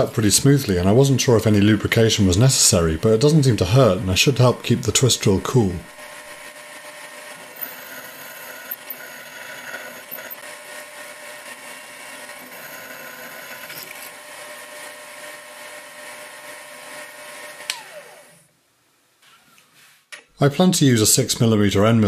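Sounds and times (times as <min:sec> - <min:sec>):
milling spindle whine: 0:01.6 - 0:16.4
drill cutting metal: 0:03.0 - 0:18.4.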